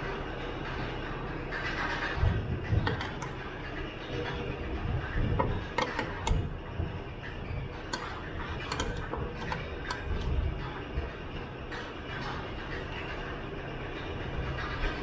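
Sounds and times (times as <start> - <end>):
low shop rumble: 0.0 - 15.0
wrench clicking against metal: 8.7 - 10.0.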